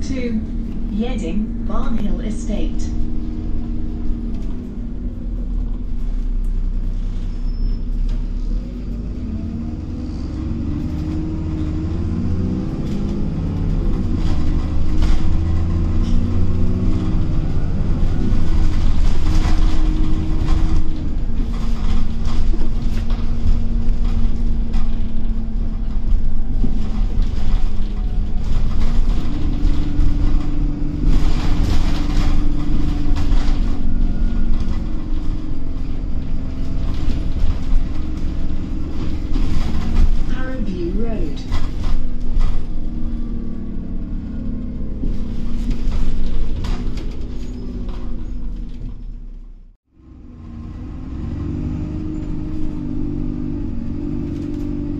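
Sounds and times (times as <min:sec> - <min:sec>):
bus diesel engine: 0:00.0 - 0:54.9
bodywork rattling: 0:12.7 - 0:43.8, 0:44.7 - 0:49.3.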